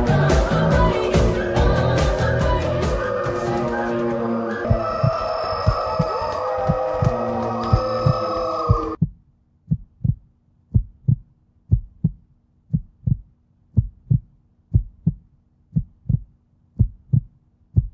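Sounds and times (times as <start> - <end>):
music: 0.0 - 5.0
heartbeat thumps: 4.7 - 17.9.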